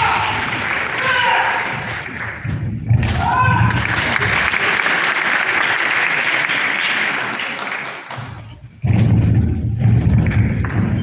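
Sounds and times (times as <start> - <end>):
audience applauding: 0.0 - 2.4, 3.7 - 8.4.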